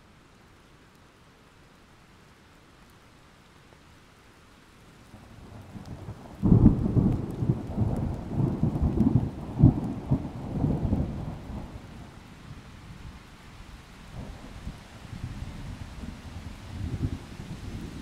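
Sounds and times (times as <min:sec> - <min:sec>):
steady rain: 0:00.0 - 0:18.0
thunder rumbling: 0:05.9 - 0:11.9.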